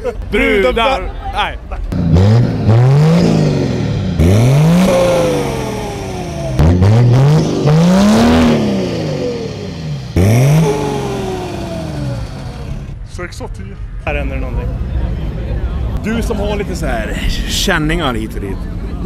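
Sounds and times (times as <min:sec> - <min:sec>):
car engine revving: 0:01.9 - 0:13.0.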